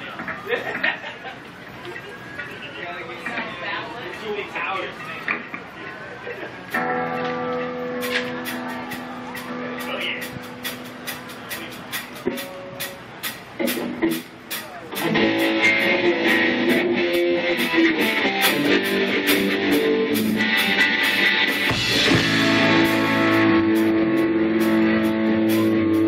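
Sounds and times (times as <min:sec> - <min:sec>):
live rock band playing: 0:06.7 - 0:26.0.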